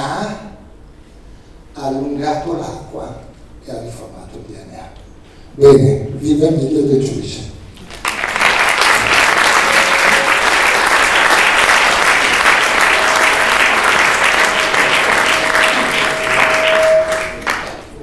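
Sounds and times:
audience applauding: 7.8s - 18.0s.

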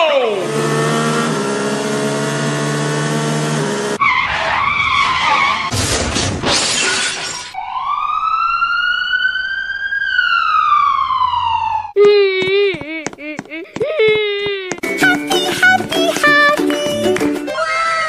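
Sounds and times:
siren-like whistle: 4.0s - 5.7s, 7.6s - 12.0s
noisy crash: 5.7s - 7.5s.

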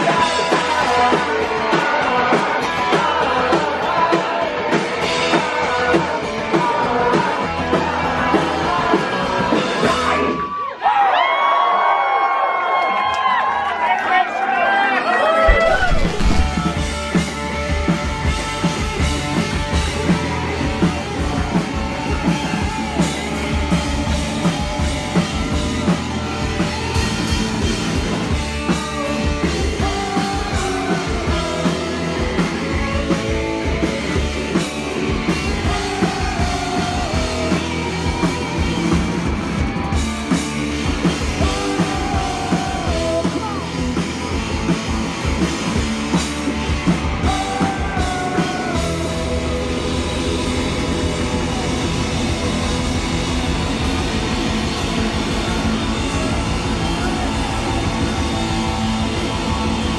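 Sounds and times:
lead singer singing: 0.0s - 10.4s, 28.5s - 39.0s, 41.0s - 44.0s, 47.0s - 52.6s, 54.7s - 59.9s
punk rock band playing live: 0.0s - 10.5s, 15.5s - 59.9s.

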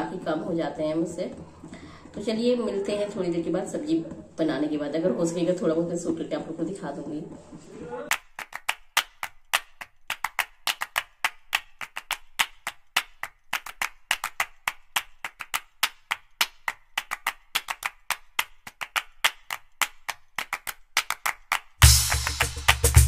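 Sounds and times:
dry percussion beat: 21.8s - 23.0s.

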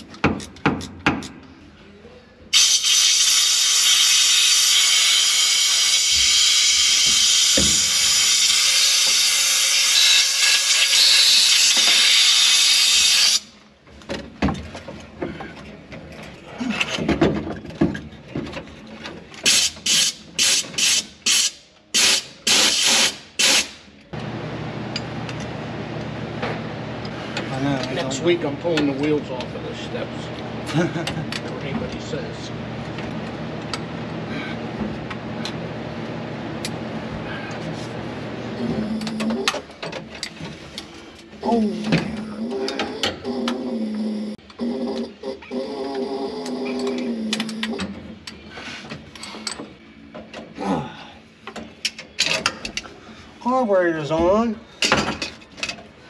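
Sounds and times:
steady low hum: 24.1s - 51.6s.

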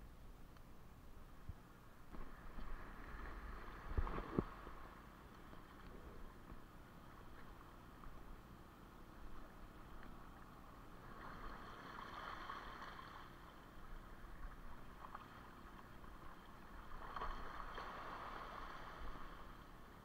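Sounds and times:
small waves lapping on rocks: 9.2s - 20.0s.

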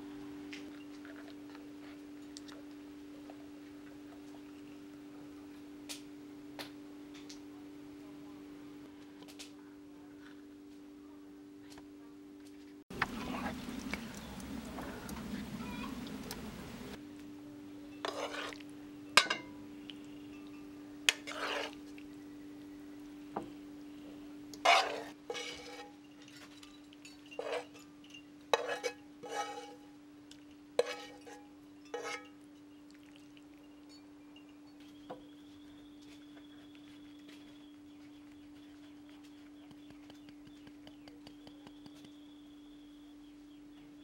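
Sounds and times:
steady low hum: 0.0s - 26.2s
fork scraping a ceramic bowl: 18.0s - 18.6s, 21.1s - 21.8s, 24.6s - 27.9s, 28.5s - 29.9s, 30.8s - 32.4s.

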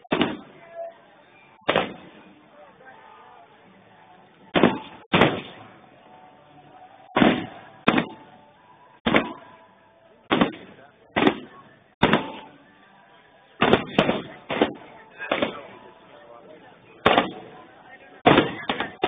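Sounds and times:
fireworks bangs: 0.0s - 0.6s, 1.6s - 2.4s, 4.5s - 5.7s, 7.1s - 8.3s, 9.0s - 9.6s, 10.3s - 12.5s, 13.6s - 15.8s, 17.0s - 17.5s, 18.2s - 19.0s.

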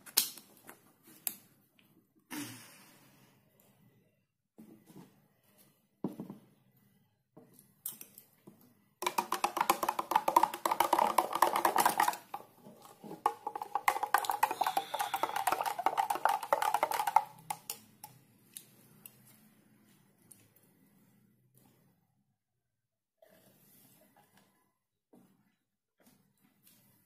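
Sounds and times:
spoon clinking against cup: 13.9s - 17.3s.

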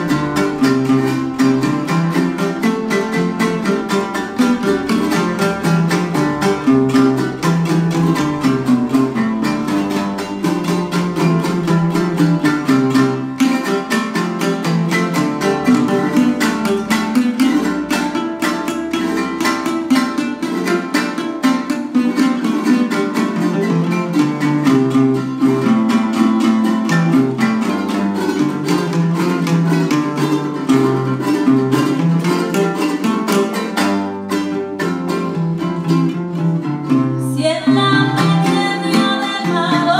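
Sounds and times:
string band playing: 0.0s - 39.9s.

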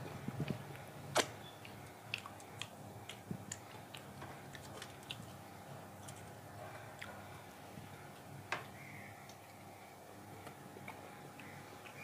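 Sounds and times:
chewing smacks: 1.2s - 5.4s.

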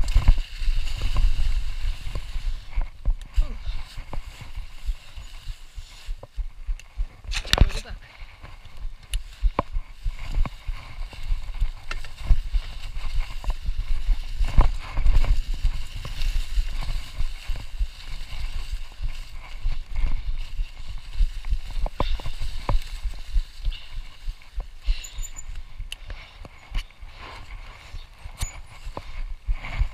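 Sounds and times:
bike tyres rushing through leaves: 0.0s - 6.6s, 8.0s - 29.9s
bike rattling over bumps: 9.3s - 29.9s.

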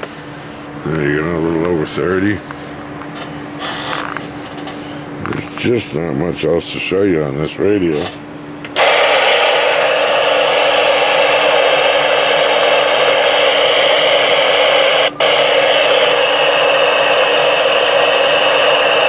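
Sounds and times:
radio static hiss: 8.8s - 19.0s.

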